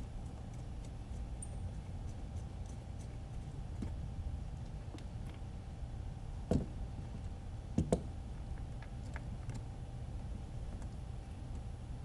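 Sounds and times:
steady low hum: 0.0 - 12.0
light knocks on rubber mat: 6.5 - 6.8.

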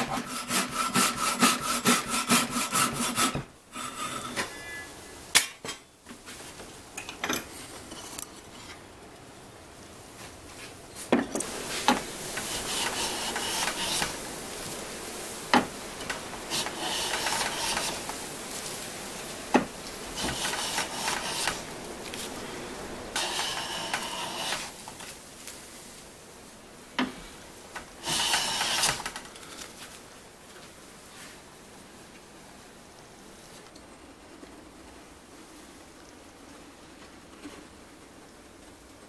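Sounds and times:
hand saw rasping through wood: 0.0 - 4.4, 11.8 - 14.2, 16.0 - 18.2, 20.2 - 21.7, 23.2 - 24.8, 28.0 - 29.2.

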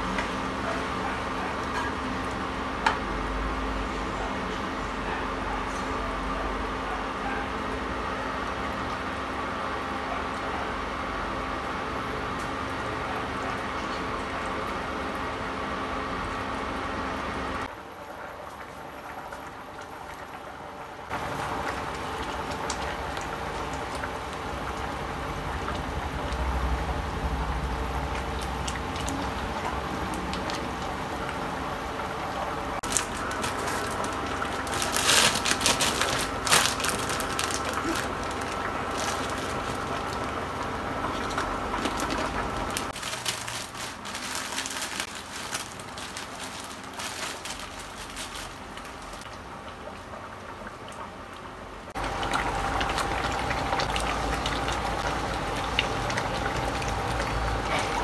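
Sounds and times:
soup bubbling in pot: 17.7 - 34.8, 36.2 - 43.0, 46.8 - 58.0
plastic bag crinkling: 32.8 - 49.4.

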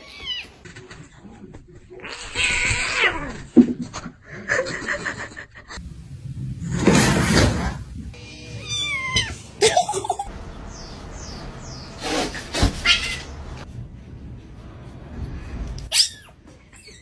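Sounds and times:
cats meowing: 8.2 - 9.5, 12.7 - 13.4.

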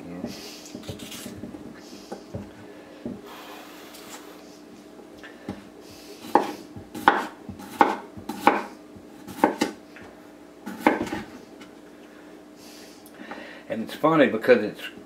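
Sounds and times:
knife chopping on cutting board: 0.7 - 1.5, 6.2 - 9.8, 10.7 - 11.3.

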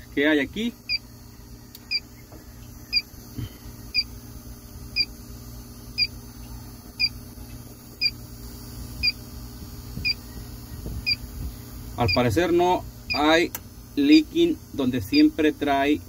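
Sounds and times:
low steady hum: 0.0 - 16.0
leak detector short high beeps: 3.9 - 4.1, 9.0 - 9.2, 11.0 - 11.2, 12.0 - 12.3, 15.1 - 15.4.

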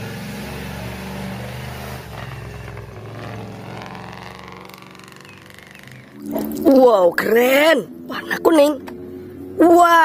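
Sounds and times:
bus engine droning past: 0.0 - 6.6.

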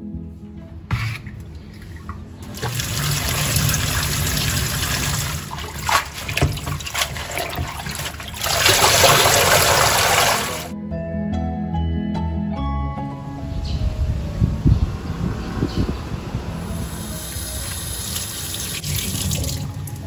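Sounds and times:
water sloshing and splashing: 1.0 - 10.7, 18.2 - 20.0
water gushing from colander: 1.7 - 10.7, 16.8 - 20.0.

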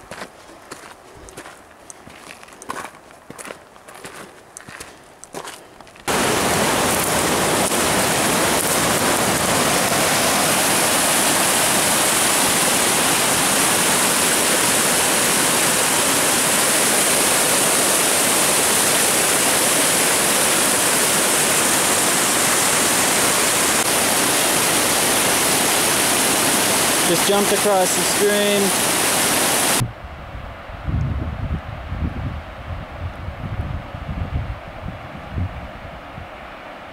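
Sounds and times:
footsteps on rocky trail: 0.0 - 10.2
mountain stream rushing over boulders: 6.1 - 29.8.

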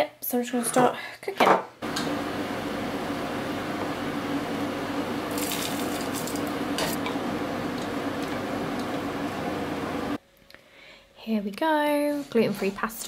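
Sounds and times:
low hum: 1.8 - 10.2.

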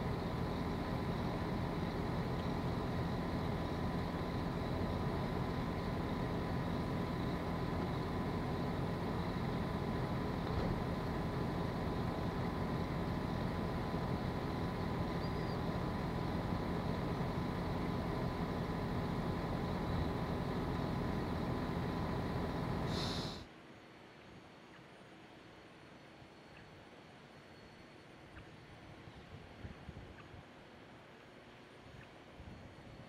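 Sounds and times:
constant low hum: 0.0 - 33.0
faint high-pitched whine: 0.0 - 33.0.

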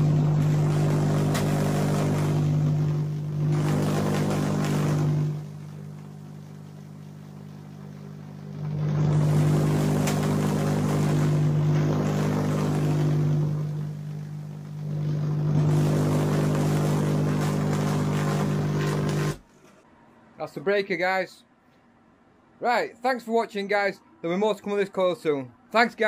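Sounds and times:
tesla coil sparks buzzing: 0.0 - 19.5.

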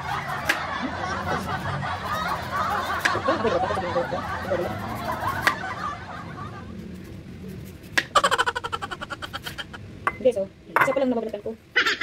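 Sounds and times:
person snickering and chuckling: 8.1 - 9.8.

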